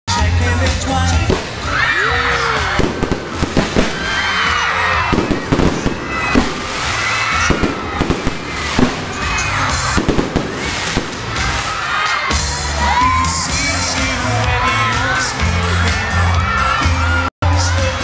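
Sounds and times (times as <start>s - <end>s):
music playing: 0.1s - 18.0s
fireworks bangs and crackles: 1.1s - 12.7s.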